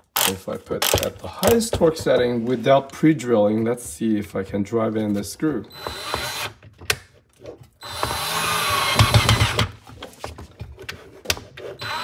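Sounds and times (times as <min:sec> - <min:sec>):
cordless drill driving screw into wood: 0:05.7 - 0:06.6, 0:07.8 - 0:09.8, 0:11.8 - 0:12.0.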